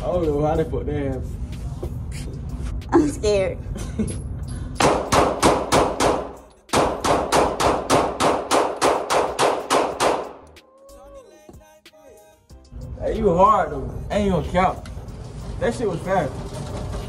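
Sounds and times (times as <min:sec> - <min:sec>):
rapid pistol fire indoors: 0:04.8 - 0:10.4.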